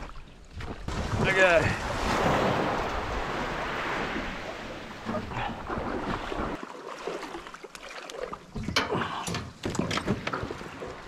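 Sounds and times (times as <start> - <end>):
water washing at shore: 0.0 - 11.0.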